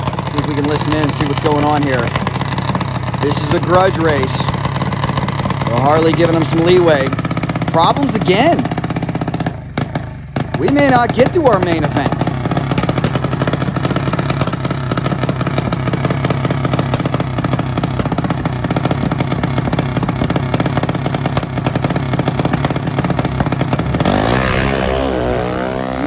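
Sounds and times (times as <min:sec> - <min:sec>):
mini bike engine revving: 0:00.0 - 0:26.0
motorcycle engine: 0:00.0 - 0:26.0.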